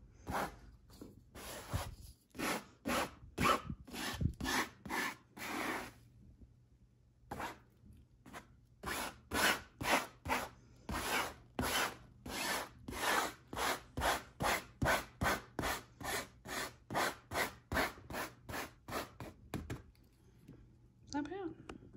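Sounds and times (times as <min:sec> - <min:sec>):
metal blade rasping on carpet: 0:01.4 - 0:06.0.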